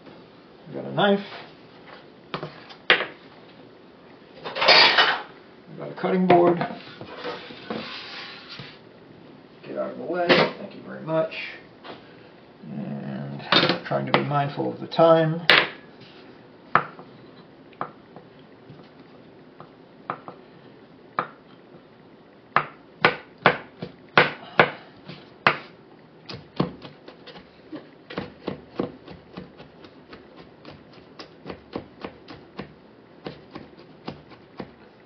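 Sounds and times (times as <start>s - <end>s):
knife chopping on wooden board: 22.6s - 25.7s, 26.3s - 27.5s, 28.1s - 34.8s.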